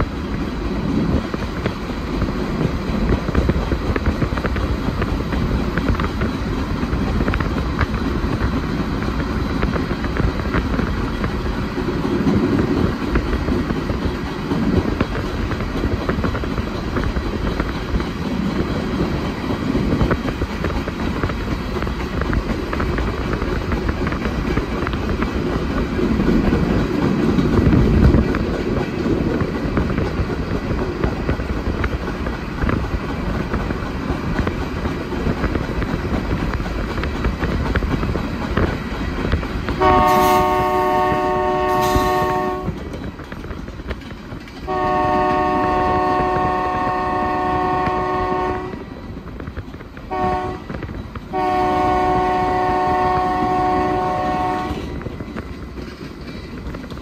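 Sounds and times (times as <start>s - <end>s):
diesel locomotive rumbling: 0.0s - 57.0s
train wheels on rails: 0.0s - 57.0s
train air horn blasts: 39.8s - 42.8s, 44.7s - 48.8s, 50.1s - 54.9s.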